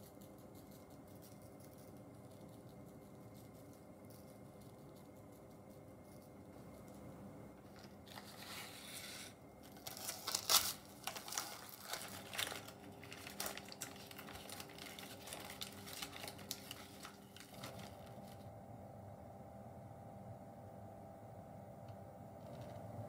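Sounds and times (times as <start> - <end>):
baking paper crinkling: 7.6 - 18.5.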